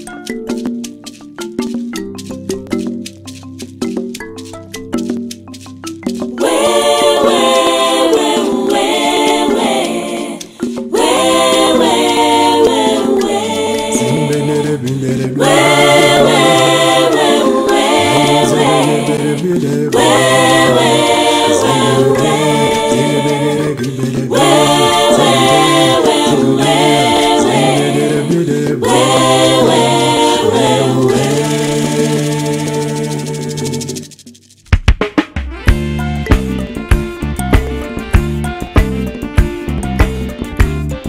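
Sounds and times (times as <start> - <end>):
voices singing a cappella: 6.4 - 34.2
low held bass voice: 13.4 - 33.7.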